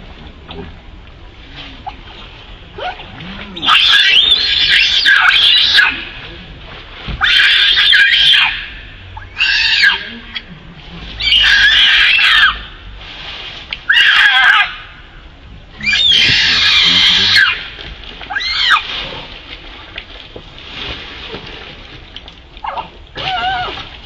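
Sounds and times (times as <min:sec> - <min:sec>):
monkey screaming: 0:03.6 - 0:06.1, 0:07.2 - 0:10.1, 0:11.2 - 0:12.7, 0:13.9 - 0:14.9, 0:15.8 - 0:17.7, 0:18.3 - 0:18.8.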